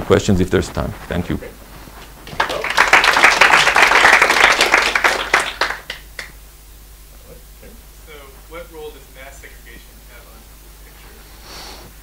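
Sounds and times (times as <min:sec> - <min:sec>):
audience applauding: 0:02.2 - 0:06.4.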